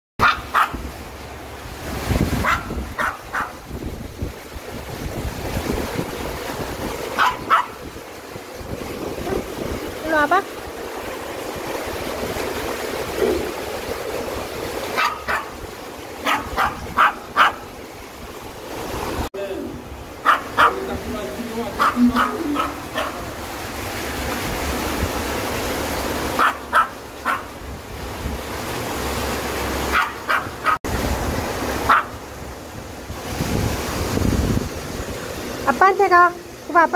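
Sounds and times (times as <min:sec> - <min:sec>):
dog barking in short yips: 0:00.2 - 0:00.8, 0:21.8 - 0:23.2
small dog yapping: 0:00.2 - 0:00.8, 0:02.4 - 0:03.6, 0:07.2 - 0:07.8, 0:14.9 - 0:15.5, 0:16.2 - 0:17.6, 0:20.2 - 0:20.8, 0:21.8 - 0:23.3, 0:26.4 - 0:27.5, 0:29.9 - 0:30.8, 0:31.9 - 0:32.2
mountain stream rushing: 0:00.2 - 0:36.9.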